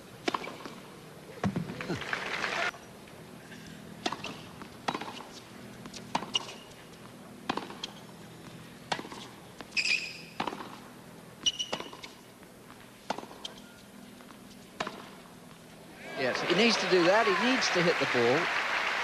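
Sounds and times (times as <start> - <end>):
faint background hum: 0.0 - 19.0
racket striking ball: 0.2 - 0.8, 4.0 - 15.2
shoes squeaking on court: 0.2 - 0.9, 3.6 - 15.9
ball bouncing: 1.4 - 1.8, 4.0 - 8.0, 8.9 - 10.8, 11.4 - 15.2.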